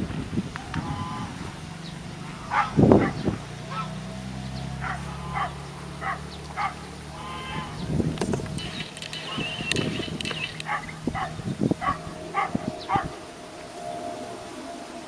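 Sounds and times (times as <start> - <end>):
steady low hum: 0.6 - 15.0
animal barks or yelps: 2.4 - 4.1, 4.7 - 7.8, 10.6 - 13.2.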